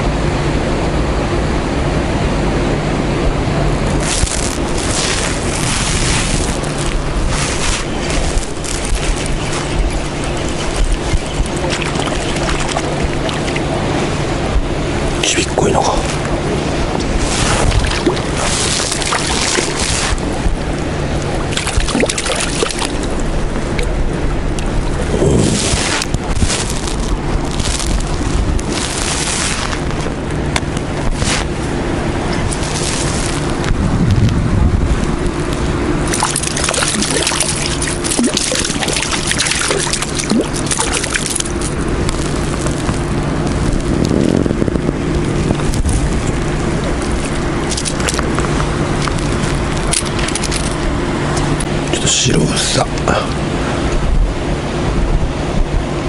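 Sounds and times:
loud rushing noise with hum: 0.0s - 56.0s
wind rumble on microphone: 0.0s - 56.0s
fish splashing in water: 4.0s - 14.6s, 16.1s - 24.0s, 24.6s - 33.7s, 35.0s - 44.0s, 45.4s - 51.0s.

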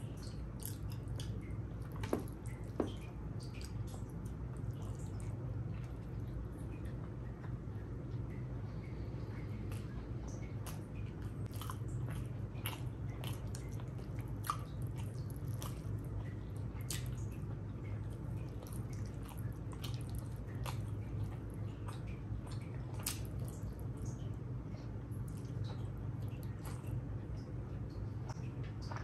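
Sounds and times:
person chewing food: 0.0s - 24.2s, 24.8s - 29.0s
steady low hum: 0.0s - 29.0s.

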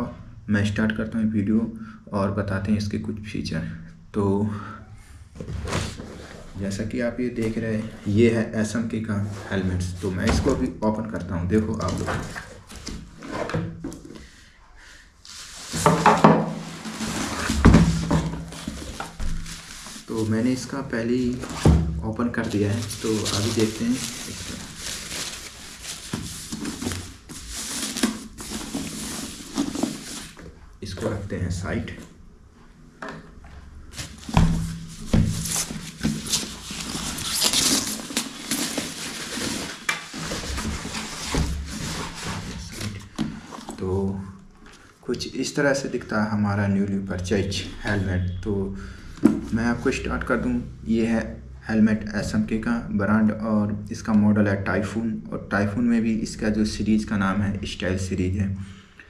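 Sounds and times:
rustling and scraping of box: 5.4s - 8.2s, 15.2s - 31.2s, 33.8s - 43.8s.

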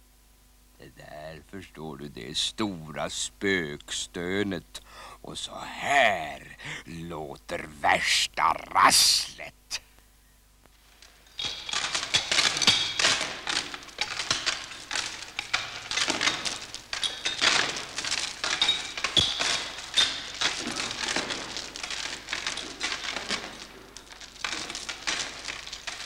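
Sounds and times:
heavy metal chain rattling: 11.1s - 26.0s.

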